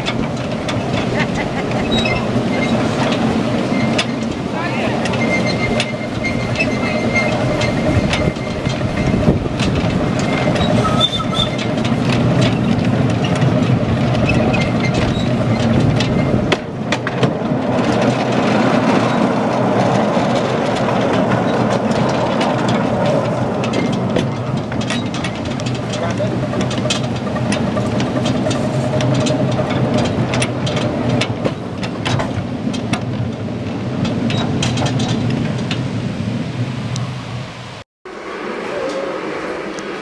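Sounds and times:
clicks over rail joints: 0.0 - 35.9
wheels rumbling on rail: 0.0 - 40.0.

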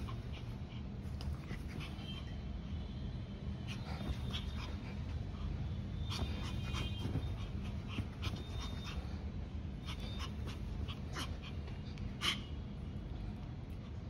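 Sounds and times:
dog panting: 0.0 - 2.4, 3.7 - 12.5
dog whining and yipping: 6.2 - 9.1.

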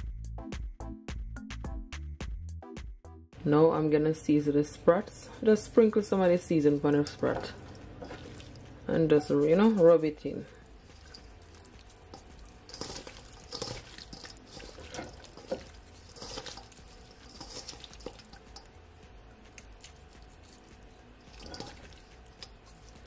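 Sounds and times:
wet squishing of hands on fish: 6.7 - 9.8, 10.4 - 23.0.

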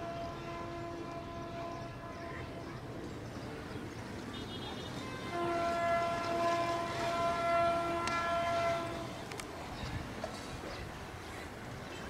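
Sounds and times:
train horn blast: 0.0 - 2.6, 4.3 - 9.2.

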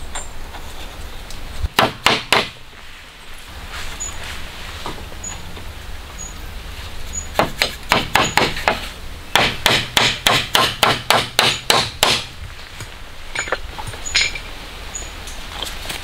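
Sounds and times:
hammer strikes: 1.8 - 2.6, 7.4 - 12.3.

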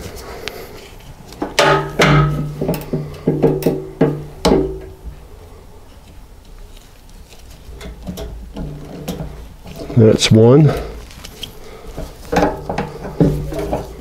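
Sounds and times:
sharp metallic knocks: 1.4 - 5.1.

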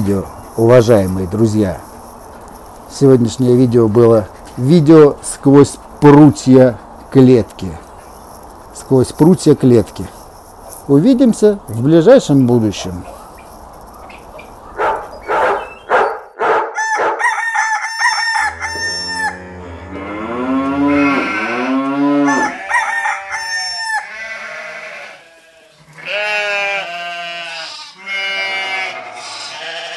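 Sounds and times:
drawn-out animal calls: 18.4 - 29.9.

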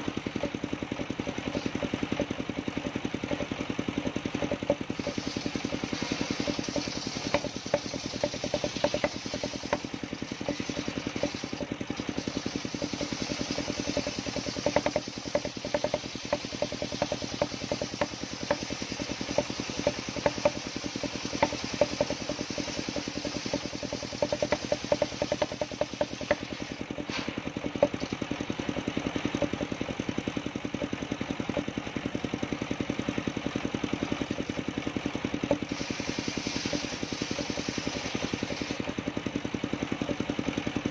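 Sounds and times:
sawmill engine knocking: 0.0 - 40.9.

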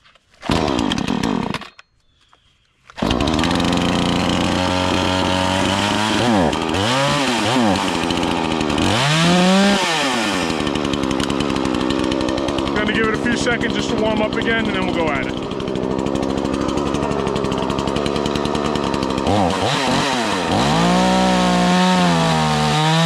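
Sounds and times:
chainsaw pull-starting and revving: 0.4 - 1.8, 2.9 - 23.0.

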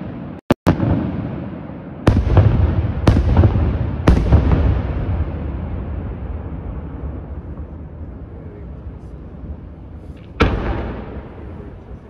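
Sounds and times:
low fireworks rumble: 0.0 - 12.0
loud firework bang: 0.7 - 6.5, 10.2 - 11.5.

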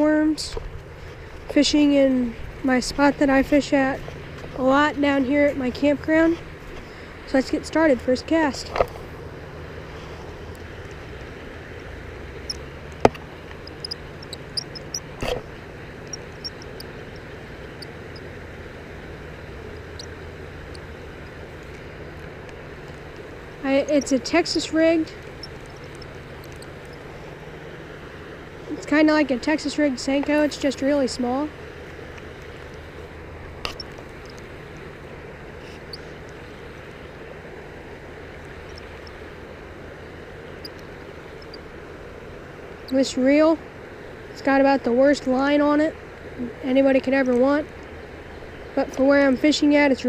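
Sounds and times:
low mechanical hum: 0.0 - 50.0
faint ticks: 12.5 - 15.4, 16.0 - 18.3, 19.6 - 27.3, 33.6 - 34.9, 38.4 - 39.2, 40.6 - 41.7.

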